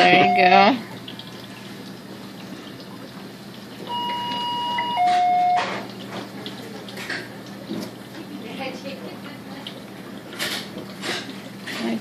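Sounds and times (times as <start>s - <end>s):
low steady hum: 0.0s - 10.4s
electronic alert beeps: 3.9s - 5.8s.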